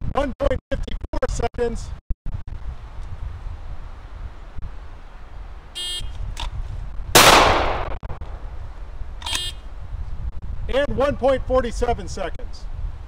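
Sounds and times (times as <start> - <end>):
pistol shot: 7.2 - 8.0.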